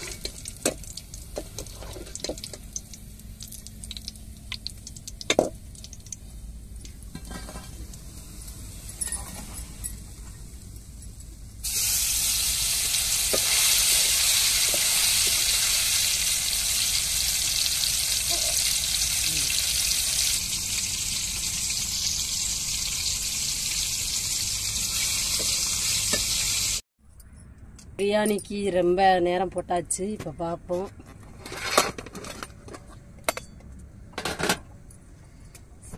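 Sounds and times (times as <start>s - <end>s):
food deep-frying in hot oil: 0.0s - 8.6s, 11.6s - 26.8s.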